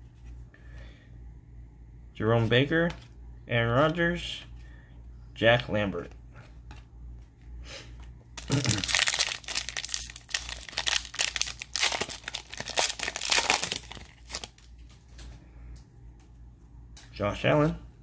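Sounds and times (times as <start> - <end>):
plastic wrapper tearing and crinkling: 8.4 - 14.8.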